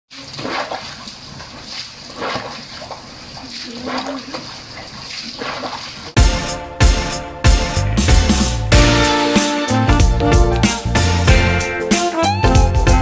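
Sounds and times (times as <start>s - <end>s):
water splashing into floodwater: 0.1s - 6.2s.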